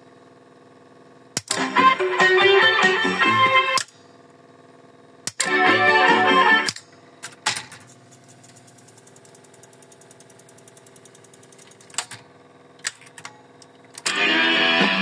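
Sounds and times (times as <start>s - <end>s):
tape recorder motor hum: 1.4s - 3.9s, 13.5s - 15.0s
music playing from tape: 1.5s - 3.8s, 5.4s - 6.8s, 14.0s - 15.0s
fine rapid ticking: 8.1s - 11.9s.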